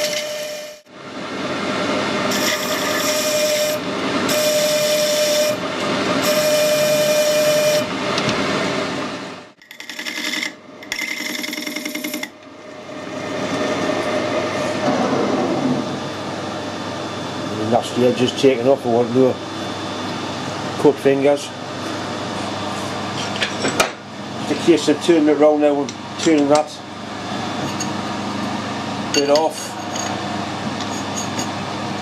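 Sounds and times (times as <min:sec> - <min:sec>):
lathe running: 0:00.0 - 0:08.8
metal lathe cutting with singing tone: 0:02.3 - 0:07.9.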